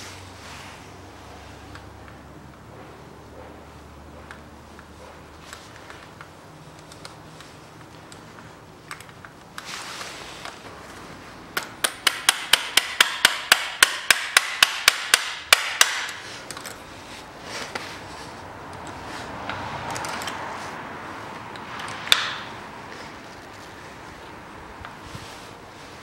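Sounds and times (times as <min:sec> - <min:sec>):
light clicks of parts handled: 0:04.2 - 0:11.8, 0:16.1 - 0:20.8
hammer tapping steel pin: 0:11.6 - 0:16.2.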